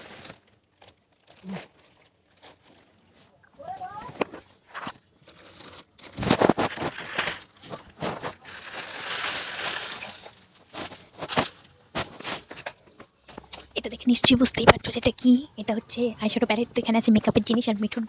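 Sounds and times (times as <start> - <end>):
plastic bag crinkling: 0.0 - 3.2, 4.9 - 13.8.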